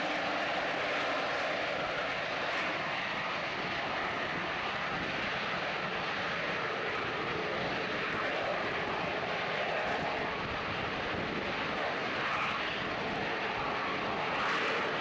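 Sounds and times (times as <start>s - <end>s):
jet engine roaring at hover: 0.0s - 15.0s.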